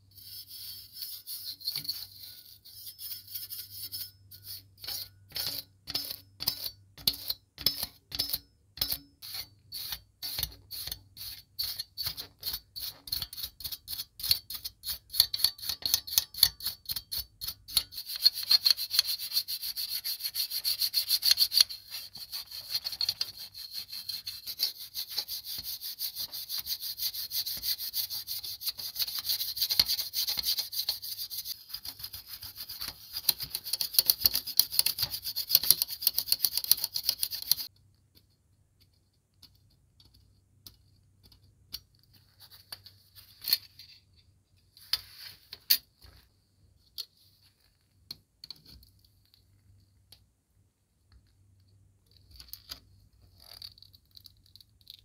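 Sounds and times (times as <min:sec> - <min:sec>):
toothbrush scrubbing metal: 0:00.1 - 0:37.7.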